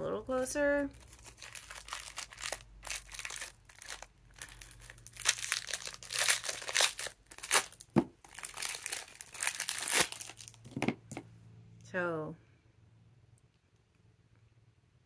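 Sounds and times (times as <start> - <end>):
plastic wrapper crinkling and tearing: 0.9 - 10.9.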